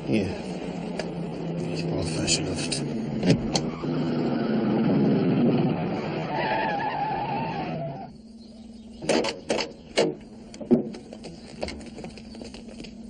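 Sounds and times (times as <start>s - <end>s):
van engine running: 0.0s - 13.0s
tyre squeal: 3.5s - 5.1s, 5.9s - 8.1s
knocks and thuds: 9.0s - 12.2s.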